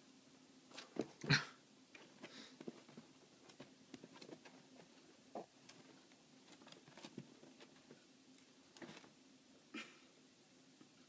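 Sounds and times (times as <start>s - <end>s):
rabbit rustling in bedding: 1.9s - 9.4s.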